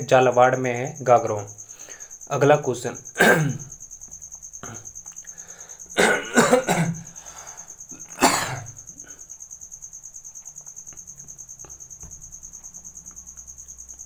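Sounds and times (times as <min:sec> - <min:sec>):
crickets chirping: 0:00.0 - 0:14.0
person coughing: 0:03.2 - 0:03.7, 0:06.0 - 0:07.1, 0:07.9 - 0:08.8.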